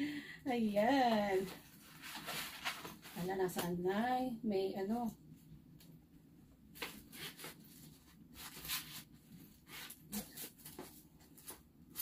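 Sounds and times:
paper envelope rustling: 0:01.4 - 0:03.3, 0:06.8 - 0:12.0.

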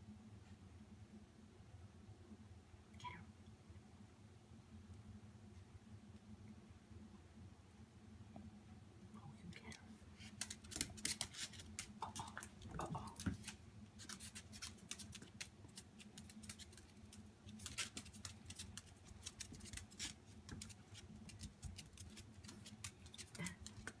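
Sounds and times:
dog claws clicking on floor: 0:10.2 - 0:24.0.

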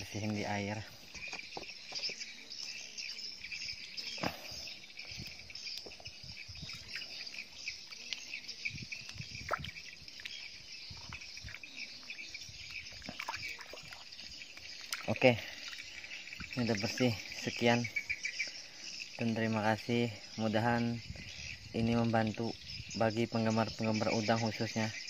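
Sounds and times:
chirring insect chorus: 0:00.0 - 0:25.0
water splashing: 0:09.0 - 0:17.6.

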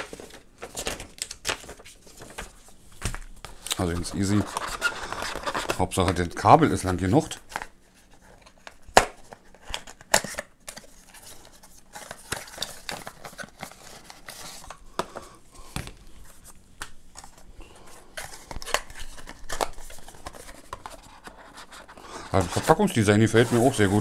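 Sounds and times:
cardboard scraping and rustling: 0:18.2 - 0:24.0.

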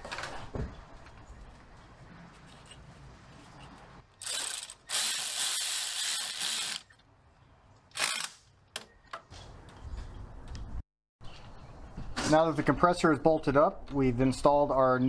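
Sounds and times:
cordless ratchet running: 0:04.2 - 0:06.8.

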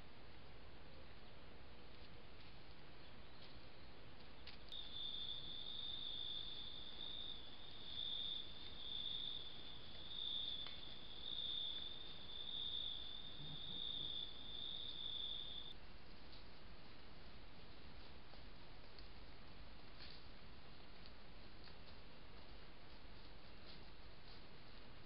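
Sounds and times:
cricket trilling: 0:04.7 - 0:15.8.

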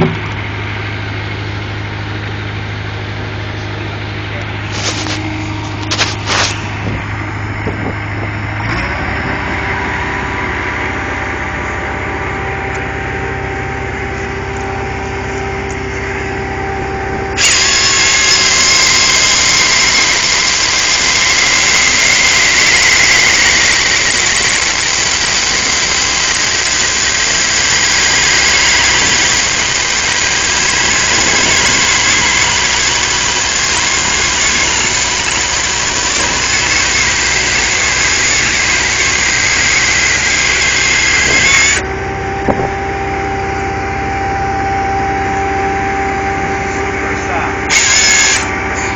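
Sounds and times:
hydraulic chainsaw whining: 0:00.0 - 0:48.9
loader engine running: 0:00.0 - 0:48.9.

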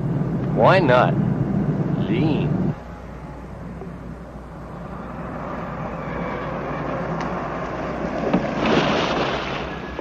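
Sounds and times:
car driving past: 0:04.6 - 0:10.0.

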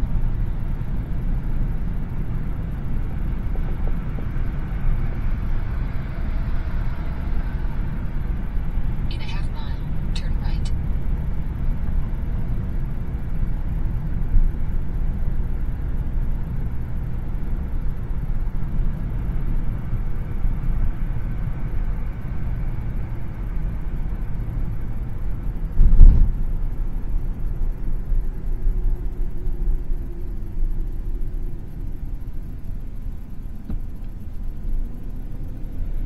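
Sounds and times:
car road and engine rumble: 0:00.0 - 0:36.0
loud thump: 0:25.9 - 0:26.3.

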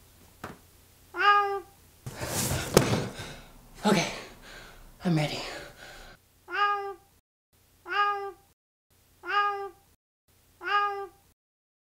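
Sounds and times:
cat meowing: 0:01.1 - 0:01.8, 0:06.5 - 0:07.1, 0:07.9 - 0:08.5, 0:09.2 - 0:09.9, 0:10.6 - 0:11.3.

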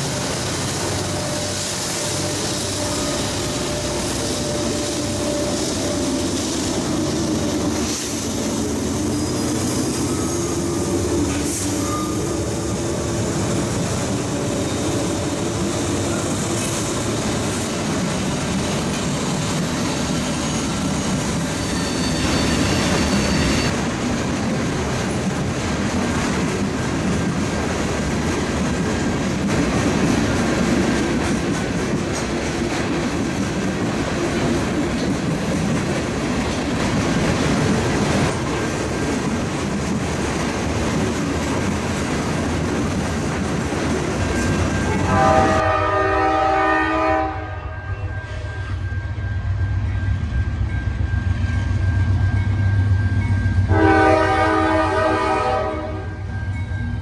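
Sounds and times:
train wheels clattering on rails: 0:00.0 - 0:45.8
locomotive horn: 0:01.1 - 0:06.4, 0:44.9 - 0:48.5, 0:53.7 - 0:56.2.

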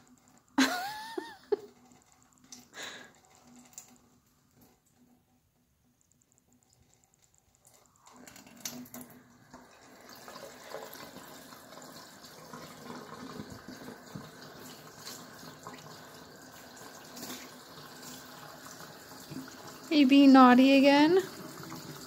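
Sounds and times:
water running into metal sink: 0:08.2 - 0:22.0.

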